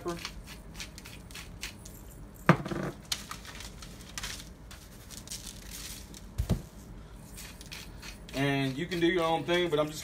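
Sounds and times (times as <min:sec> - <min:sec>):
paper crinkling: 0:03.0 - 0:06.5.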